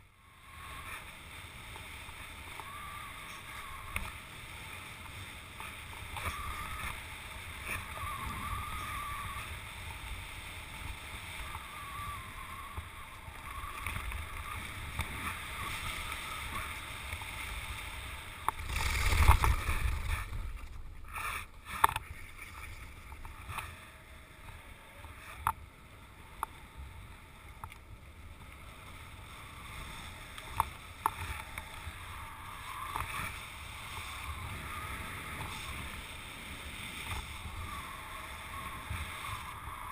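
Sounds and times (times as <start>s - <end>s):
wind rushing over microphone: 0.4s - 25.5s, 29.1s - 39.9s
skis hissing across snow: 29.0s - 39.9s.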